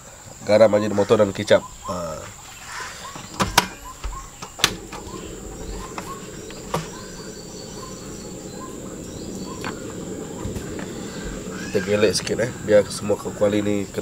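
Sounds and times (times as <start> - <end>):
crickets chirping: 0.0 - 14.0
low rushing: 4.2 - 14.0.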